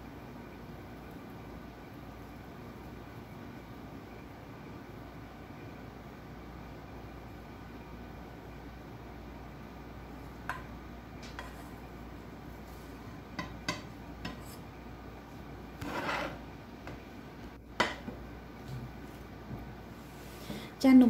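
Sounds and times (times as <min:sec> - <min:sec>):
spatula knocking and scraping pan: 0:10.4 - 0:11.8, 0:13.3 - 0:14.6, 0:17.8 - 0:18.2
pan clacking on stove: 0:13.4 - 0:14.4, 0:17.8 - 0:18.2.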